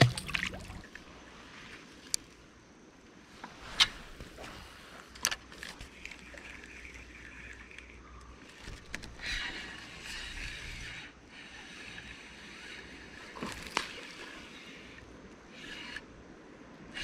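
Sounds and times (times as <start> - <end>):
creek water splashing: 0.0 - 1.0.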